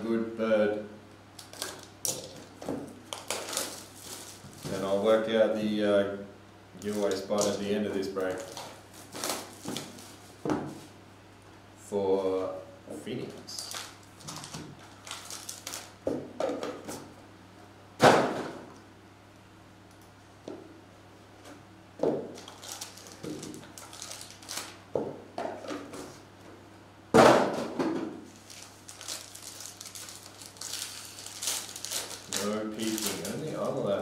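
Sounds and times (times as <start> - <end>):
foil wrapper crinkling: 1.4 - 5.2, 6.8 - 10.2, 13.6 - 16.0, 22.4 - 24.8, 28.3 - 34.0.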